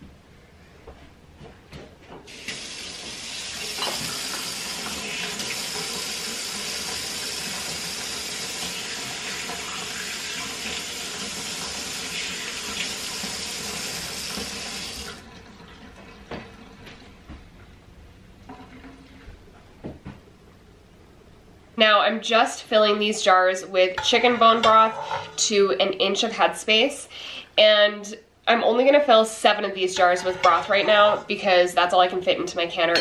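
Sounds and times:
water rushing from faucet: 0:02.3 - 0:16.3.

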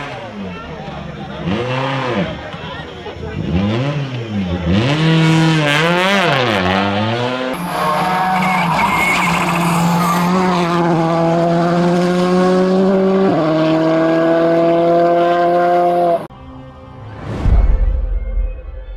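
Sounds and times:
engine at high revs passing: 0:01.3 - 0:02.4, 0:03.4 - 0:16.3
car engine revving: 0:03.4 - 0:16.3
tyres skidding: 0:07.4 - 0:11.0.

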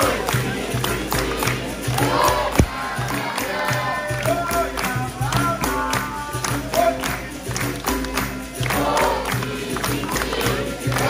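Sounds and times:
group singing: 0:00.0 - 0:11.0
tambourines: 0:00.0 - 0:11.0
hand drum strikes: 0:01.4 - 0:06.9.

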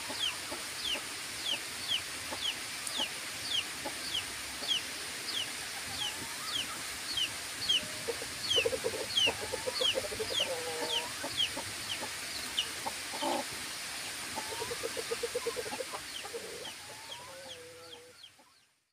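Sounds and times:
chickens clucking: 0:00.0 - 0:18.6
chicks peeping: 0:00.1 - 0:13.4, 0:14.3 - 0:18.6
chicken squawk: 0:07.7 - 0:11.5, 0:14.3 - 0:18.2.

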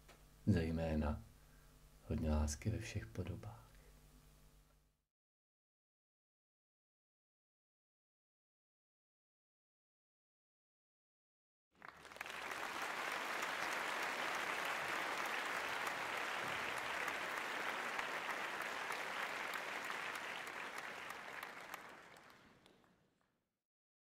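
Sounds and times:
crowd applauding: 0:11.8 - 0:23.3.

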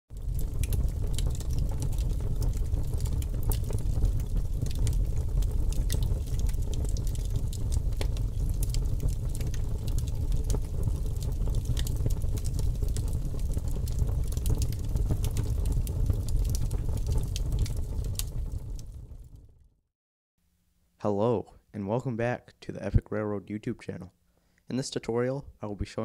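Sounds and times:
fire pops and snaps: 0:00.1 - 0:19.6
wood fire crackling: 0:00.1 - 0:19.6.

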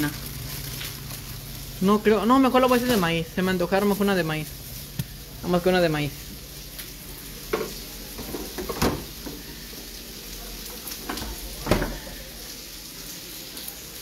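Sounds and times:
food sizzling in a pan: 0:00.0 - 0:14.0
knocks and clatters in refrigerator: 0:07.6 - 0:09.4, 0:11.1 - 0:12.0.

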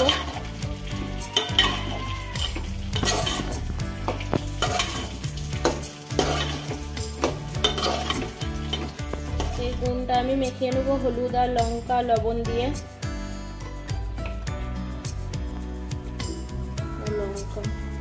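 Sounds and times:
metal spatula scraping pot: 0:00.0 - 0:09.9
vegetables sizzling in oil: 0:00.0 - 0:10.4.

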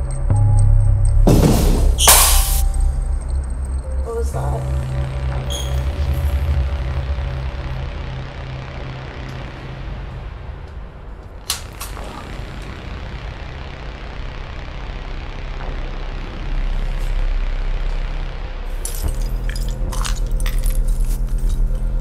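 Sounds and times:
low rumbling drone: 0:00.0 - 0:22.0
sharp hit: 0:00.3 - 0:04.0.

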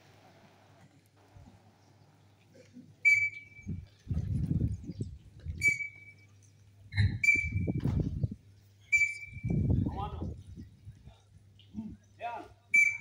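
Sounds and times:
sharp whistle blasts: 0:03.0 - 0:03.7, 0:05.6 - 0:06.2, 0:07.0 - 0:07.8, 0:08.9 - 0:09.7, 0:12.7 - 0:13.0.

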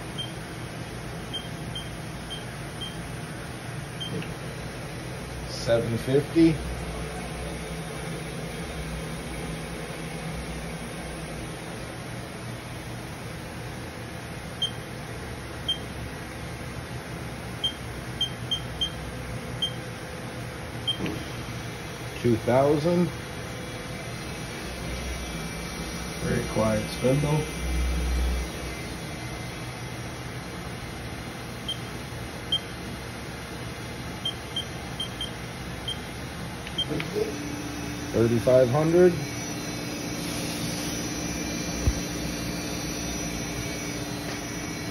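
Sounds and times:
machine spindle humming: 0:17.5 - 0:44.9.

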